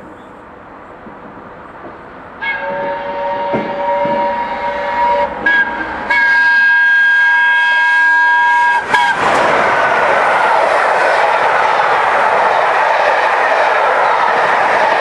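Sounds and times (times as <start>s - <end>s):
roar of wheels on rails: 0.0s - 15.0s
steam locomotive whistle: 2.4s - 9.3s.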